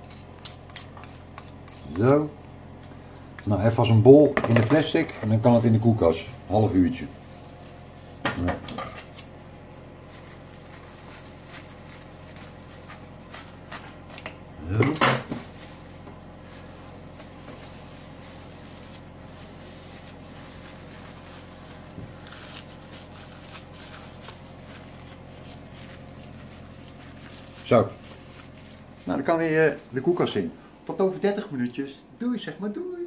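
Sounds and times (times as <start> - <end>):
steady low hum: 0.0 - 33.0
plastic film crinkling: 5.0 - 8.2, 8.9 - 14.5, 15.2 - 30.5.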